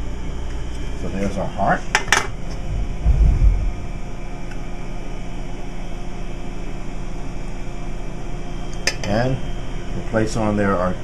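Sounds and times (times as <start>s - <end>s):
noisy background hum: 0.0s - 11.0s
dull low thump: 2.5s - 4.4s.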